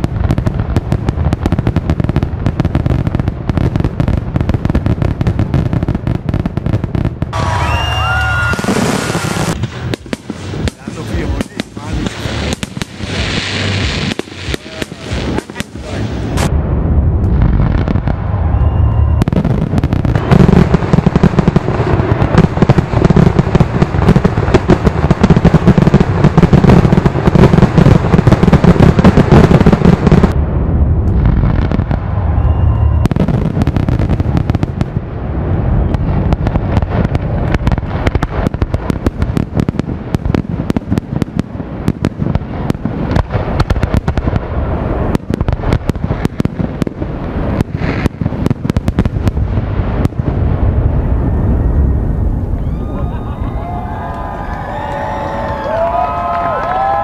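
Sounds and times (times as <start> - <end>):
firework shells booming: 0.0 - 52.6
firework crackling: 0.0 - 57.0.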